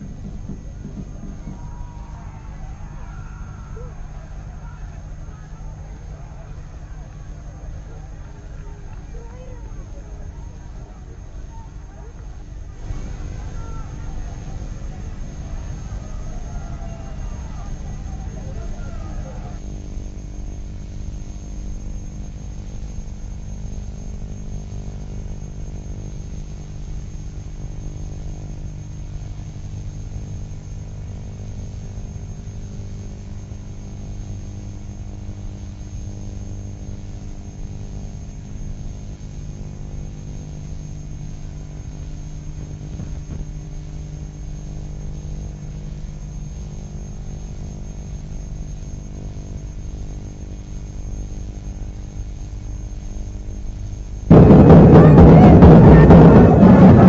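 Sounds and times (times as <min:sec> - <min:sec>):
electrical hum and buzz: 0:00.0 - 0:57.0.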